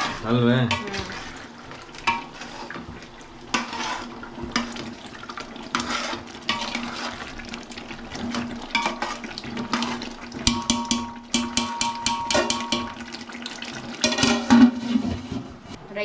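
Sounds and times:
ladle stirring gravy in pot: 0.0s - 15.8s
ladle clinking against pot: 10.4s - 13.0s, 14.0s - 14.8s.

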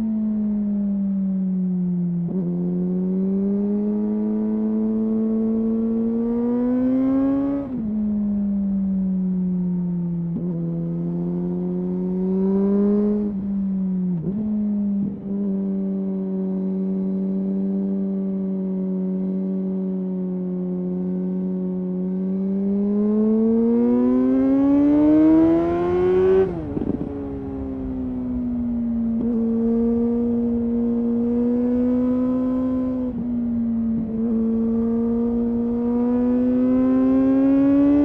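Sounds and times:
motorcycle engine accelerating: 1.6s - 38.0s.

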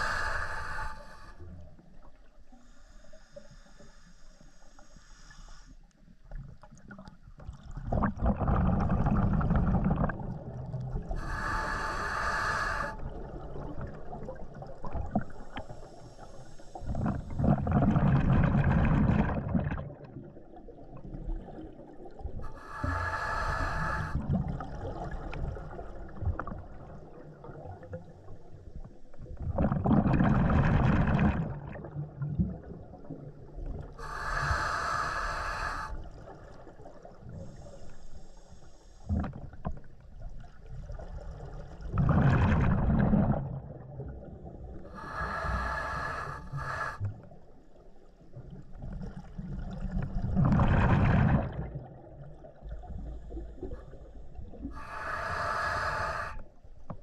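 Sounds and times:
regulator hissing inhale: 0.0s - 1.5s, 2.5s - 6.0s, 11.1s - 13.1s, 15.3s - 17.5s, 22.4s - 24.2s, 34.0s - 36.3s, 37.4s - 39.2s, 44.8s - 47.4s, 54.7s - 56.6s
rush of exhaled bubbles: 7.4s - 15.4s, 16.9s - 28.0s, 29.3s - 34.7s, 40.7s - 47.2s, 48.8s - 56.4s.

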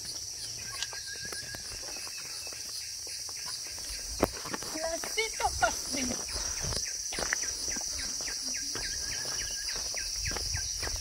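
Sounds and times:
bird chirping: 0.0s - 4.4s, 5.3s - 11.0s
forest insects droning: 0.0s - 11.0s.

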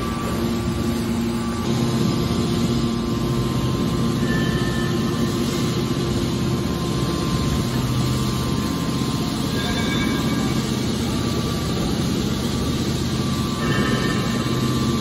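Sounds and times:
hydraulic power unit humming: 0.0s - 15.0s.

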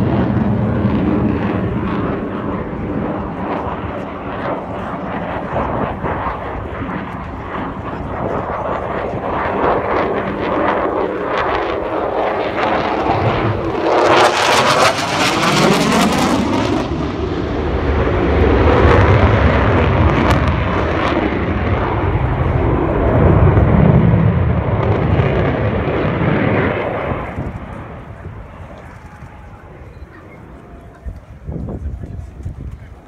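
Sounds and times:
jet crackle: 0.0s - 31.4s
heavy low rumble: 0.0s - 33.0s
jet roar passing overhead: 0.0s - 33.0s.

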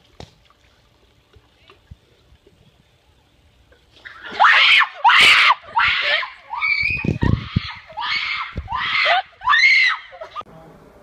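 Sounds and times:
woman screaming: 4.3s - 10.4s.

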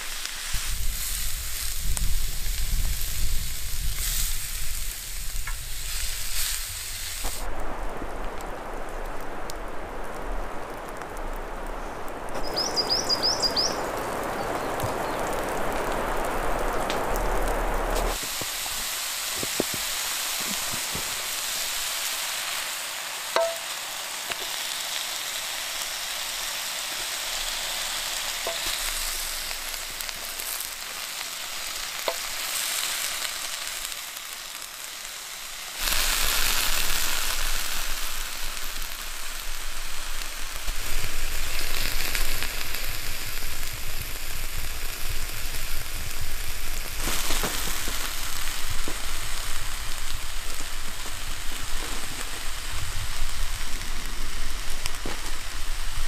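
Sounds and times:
meat sizzling in grill pan: 0.0s - 7.5s, 12.4s - 56.0s.

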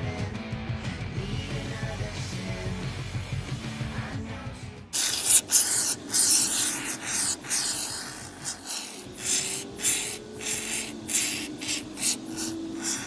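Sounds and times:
spray foam hissing and sputtering: 5.0s - 13.0s.

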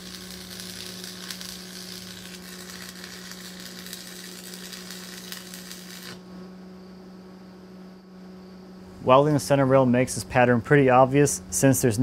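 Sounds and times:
welding arc crackling: 0.0s - 6.3s
steady hum: 0.0s - 12.0s.

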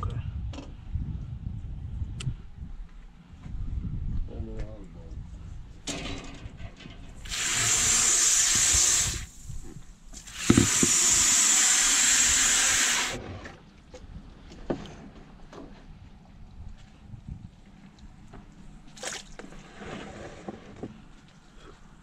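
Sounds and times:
water spraying hard: 7.2s - 9.6s, 10.2s - 13.2s.

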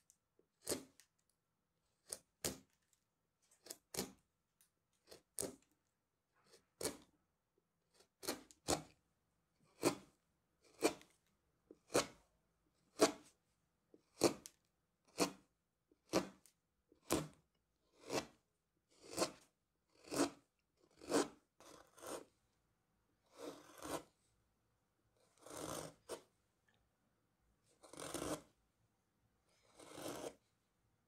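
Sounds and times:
carving gouge paring wood: 0.5s - 1.1s, 2.0s - 2.8s, 3.6s - 4.3s, 5.0s - 7.2s, 7.8s - 9.0s, 9.6s - 12.2s, 12.8s - 22.3s, 23.3s - 24.1s, 25.3s - 26.3s, 27.8s - 28.6s, 29.5s - 30.4s.

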